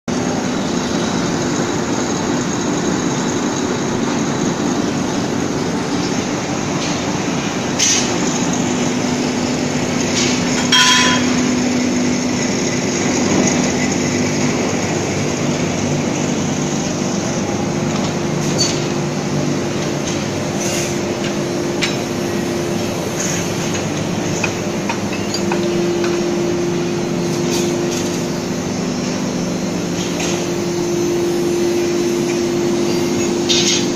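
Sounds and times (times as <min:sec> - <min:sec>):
machinery low hum: 0:00.1 - 0:33.9
sharp metal clanks: 0:10.2 - 0:11.5.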